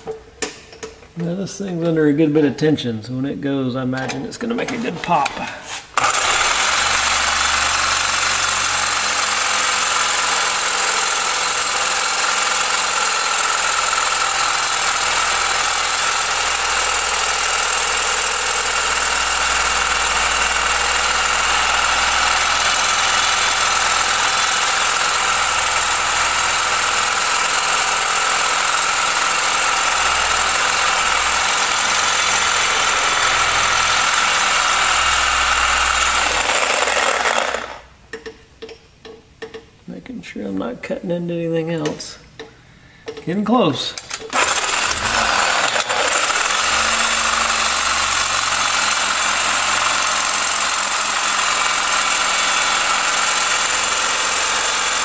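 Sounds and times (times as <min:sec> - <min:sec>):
reciprocating saw cutting metal: 0:05.9 - 0:37.9, 0:44.1 - 0:55.0.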